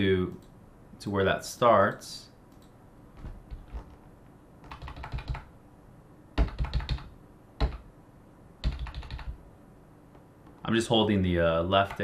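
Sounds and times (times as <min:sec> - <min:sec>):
keyboard keys clicking: 0:04.6 - 0:05.5, 0:06.4 - 0:07.8, 0:08.6 - 0:09.4.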